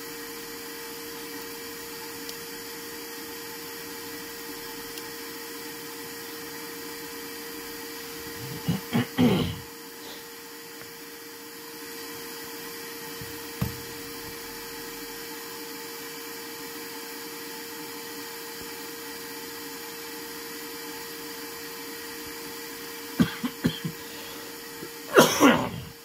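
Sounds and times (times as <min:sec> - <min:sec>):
electric motor humming: 0:00.0 - 0:18.2.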